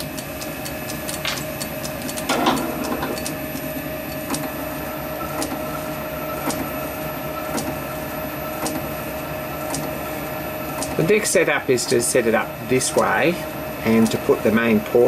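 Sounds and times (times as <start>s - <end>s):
lathe humming with whine: 0.0s - 15.0s
machine clunks: 2.3s - 3.3s.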